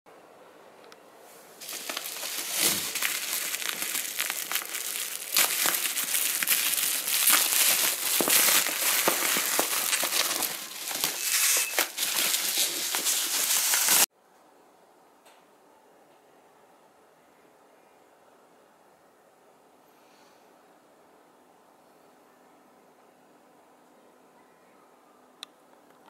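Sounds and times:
bubble wrap crinkling: 1.6s - 14.1s.

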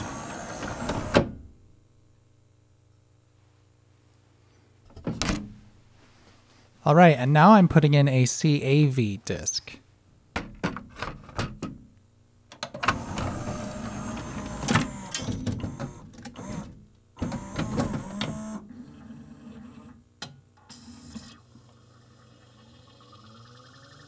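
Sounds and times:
disc spinning whir: 0.0s - 1.4s, 12.8s - 24.0s
disc tray mechanism running: 0.0s - 1.5s, 12.6s - 20.0s.

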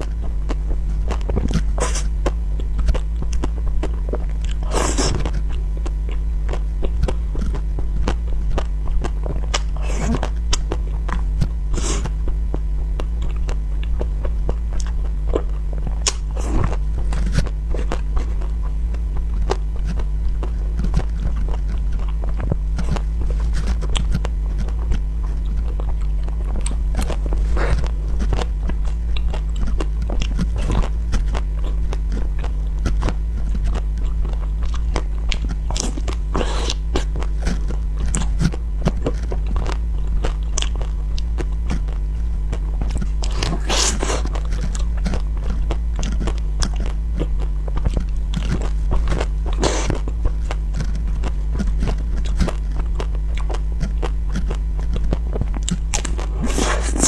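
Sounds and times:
chewing and biting cakes: 0.0s - 57.0s
steady low hum: 0.0s - 57.0s.

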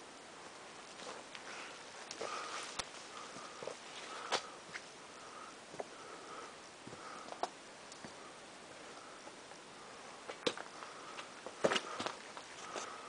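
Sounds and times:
footsteps on rubble and brush: 0.9s - 4.9s, 10.3s - 13.0s.

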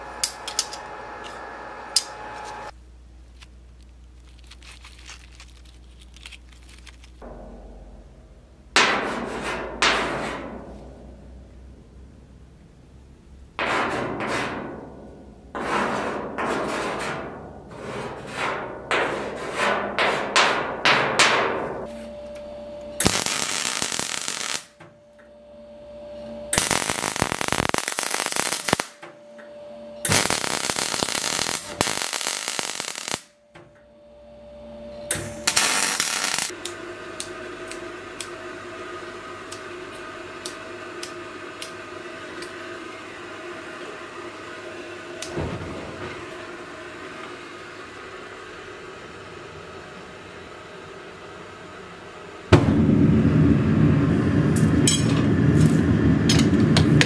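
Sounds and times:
noisy machine bursts: 0.0s - 2.7s, 22.1s - 24.8s, 25.4s - 29.0s, 29.7s - 57.0s
machine hum: 0.0s - 19.0s, 21.5s - 57.0s.

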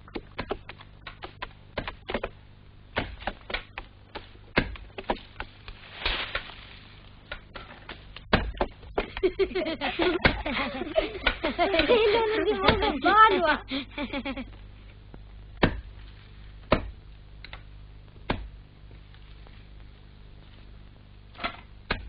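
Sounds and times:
irregular clicks and knocks: 0.0s - 5.8s, 7.2s - 9.4s.

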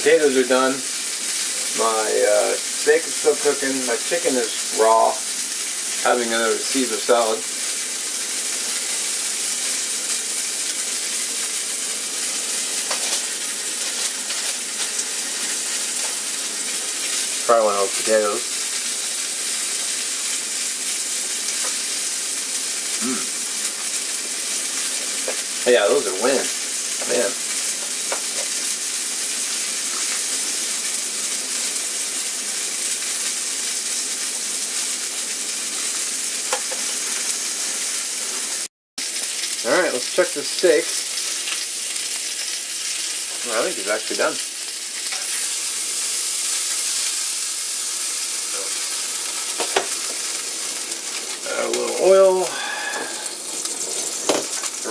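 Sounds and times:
meat sizzling in a pan: 0.0s - 54.9s.

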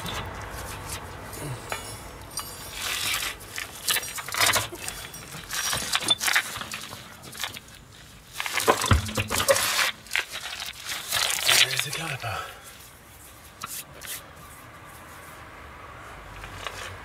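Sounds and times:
metal clinking of wheel nut and wrench: 0.0s - 11.7s.

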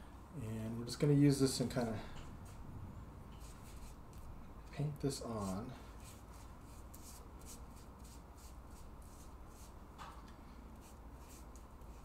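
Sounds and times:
pastry brush swishing on dough: 5.3s - 9.8s, 10.8s - 12.0s.

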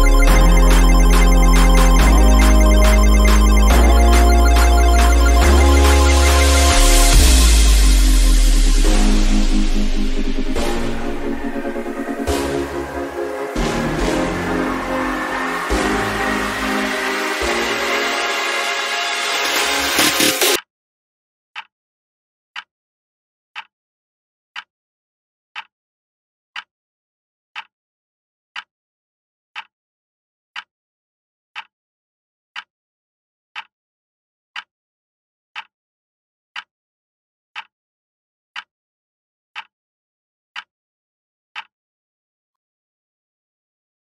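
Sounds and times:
clock ticking: 0.0s - 18.4s.

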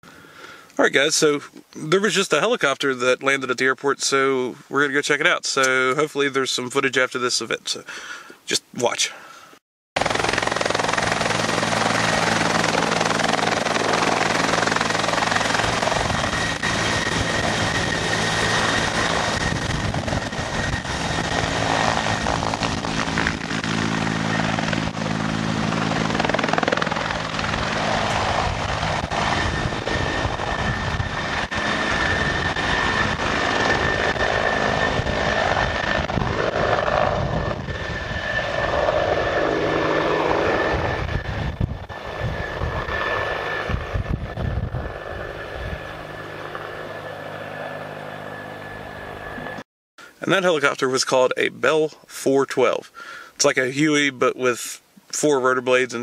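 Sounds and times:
helicopter turbine whine: 9.2s - 56.0s
helicopter rotor noise: 10.0s - 54.2s.

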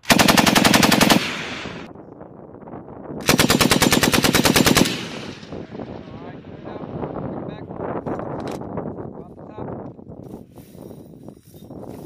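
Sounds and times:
machine gun automatic fire: 0.0s - 1.9s, 3.2s - 5.7s
gunfire echo: 3.2s - 7.0s.

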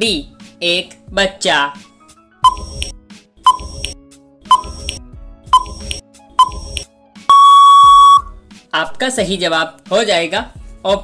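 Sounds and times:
short ticking beeps: 2.4s - 2.9s, 3.5s - 5.0s, 5.6s - 8.3s
long steady buzzer tone: 7.3s - 8.3s.

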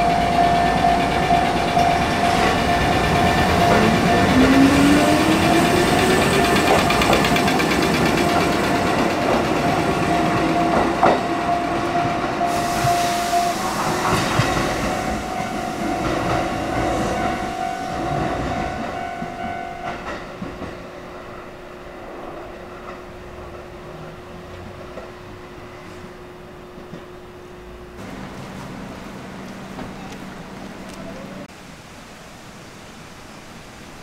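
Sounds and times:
running gear rumbling: 0.0s - 12.1s
wheels clacking over rail joints: 0.0s - 13.0s
electric train whine: 0.0s - 31.5s.

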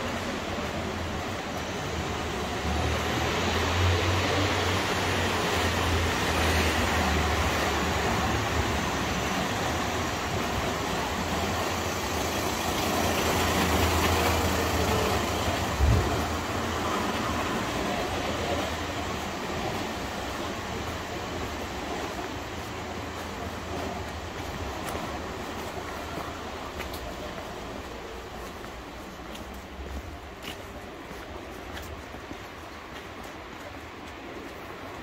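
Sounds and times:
city road traffic: 0.0s - 35.0s.

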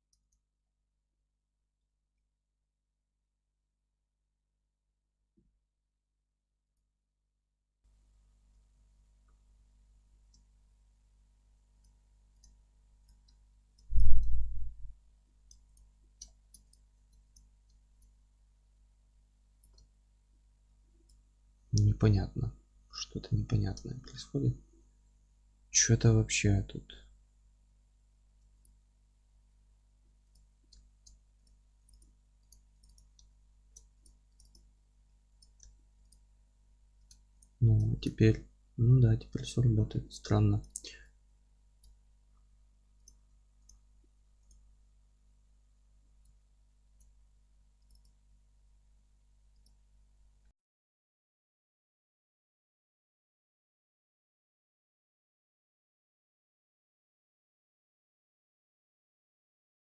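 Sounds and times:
computer mouse clicks: 11.8s - 14.6s, 15.5s - 18.2s, 19.6s - 19.9s, 30.2s - 34.7s, 35.4s - 36.3s, 43.0s - 43.8s, 44.4s - 44.7s, 47.8s - 48.2s, 49.5s - 49.8s.

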